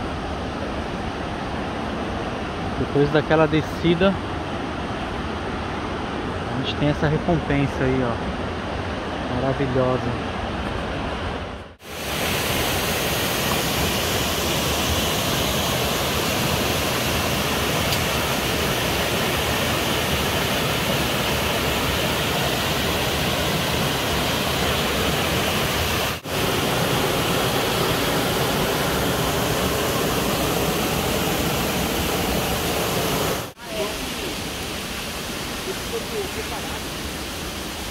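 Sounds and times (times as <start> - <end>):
waterfall rushing: 11.8 - 37.9.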